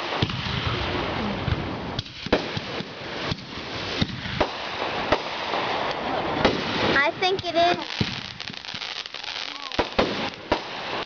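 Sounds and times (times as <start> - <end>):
fireworks bangs: 0.0 - 11.0
fireworks hissing crackle: 0.0 - 11.0.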